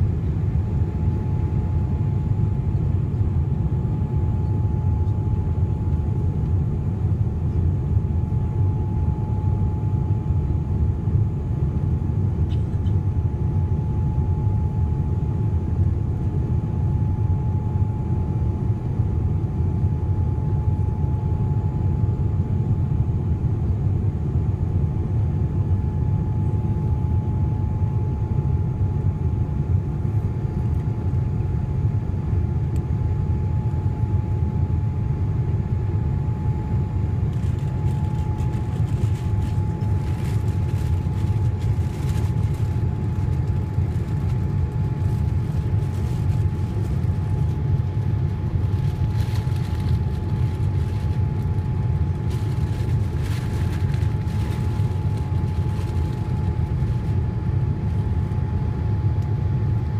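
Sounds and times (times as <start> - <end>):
airplane cabin engine drone: 0.0 - 59.9
thin steady hum: 25.0 - 59.9.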